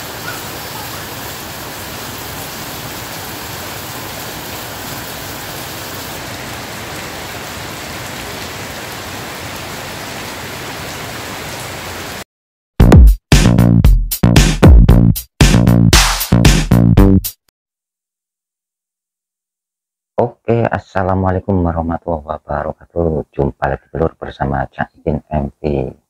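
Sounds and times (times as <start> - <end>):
heavy rain on pavement: 0.0 - 12.3.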